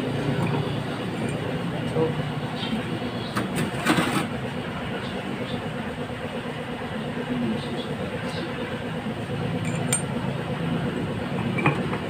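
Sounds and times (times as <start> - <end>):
low mechanical hum: 0.0 - 12.0
light metallic clinks: 9.6 - 10.1.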